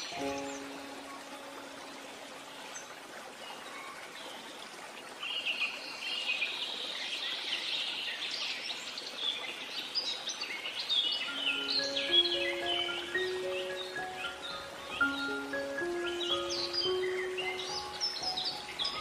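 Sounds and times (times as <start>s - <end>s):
music notes: 0.0s - 2.2s, 11.3s - 19.0s
birds chirping: 0.0s - 4.4s, 10.8s - 19.0s
steady hiss: 11.3s - 19.0s.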